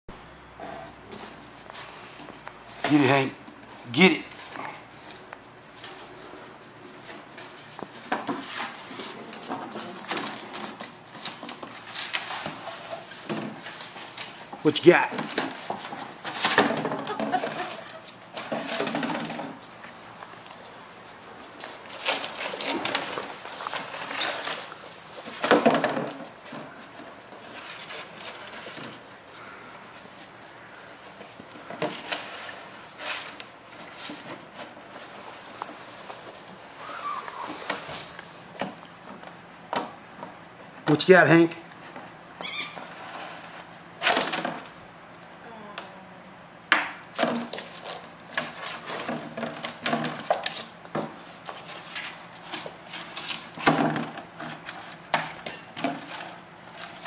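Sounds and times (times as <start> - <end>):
plastic jug knocking and scraping: 14.4 - 19.7, 25.3 - 26.8, 46.8 - 51.3, 52.4 - 57.0.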